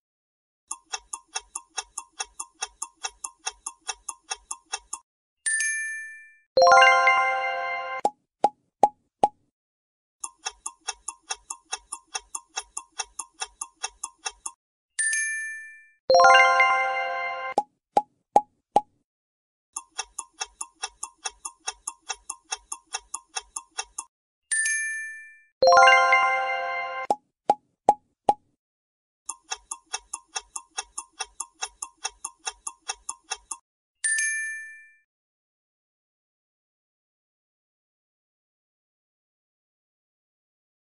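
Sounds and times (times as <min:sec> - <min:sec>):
clock ticking: 0:00.7 - 0:05.0, 0:10.2 - 0:14.6, 0:19.8 - 0:24.1, 0:29.3 - 0:33.6.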